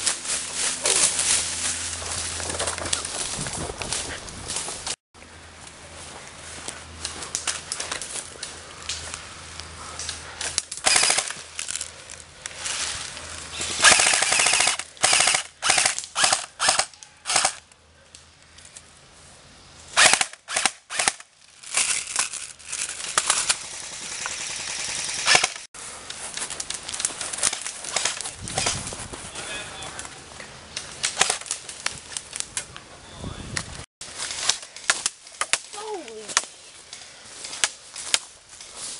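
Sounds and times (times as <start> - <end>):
airsoft rifle full-auto bursts: 10.8 - 11.3, 13.8 - 17.6, 20.0 - 21.2, 23.3 - 25.7.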